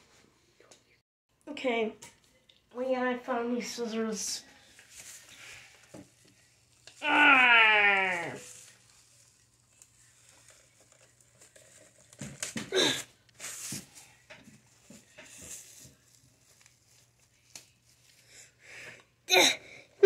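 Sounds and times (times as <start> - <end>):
plastic bag crinkling: 8.4 - 13.7.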